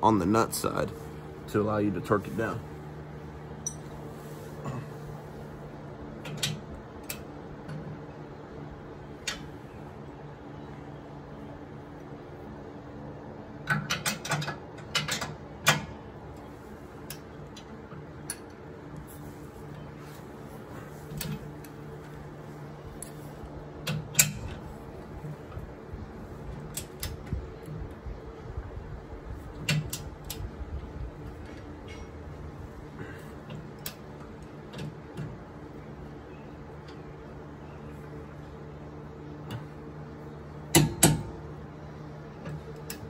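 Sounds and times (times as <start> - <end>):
box fan humming: 0.0 - 43.0.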